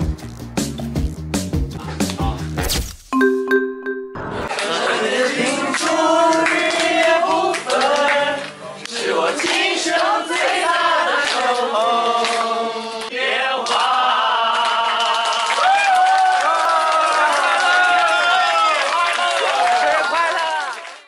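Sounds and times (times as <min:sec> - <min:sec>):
pop song singing: 0:03.2 - 0:15.2.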